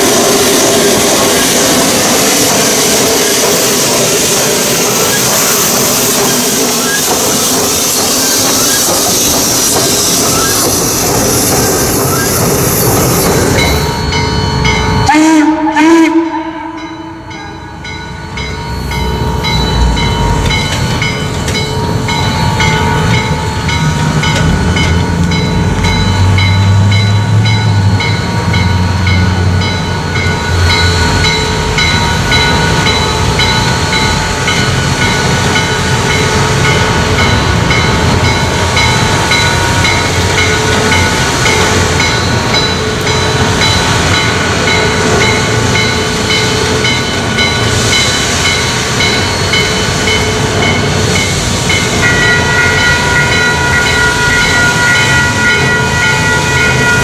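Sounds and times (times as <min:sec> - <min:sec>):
steady ringing bell: 0:11.1 - 0:15.1, 0:16.8 - 0:57.0
steam whistle blast: 0:15.0 - 0:17.0
passenger cars rolling: 0:17.5 - 0:57.0.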